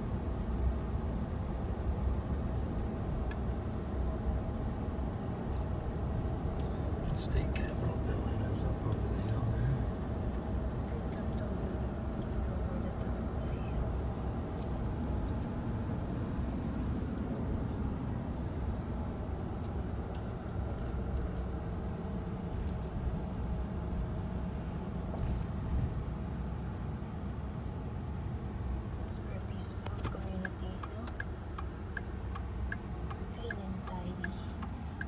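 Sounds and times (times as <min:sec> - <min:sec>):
car road and engine rumble: 0:00.0 - 0:35.0
faint ticks: 0:29.9 - 0:33.6.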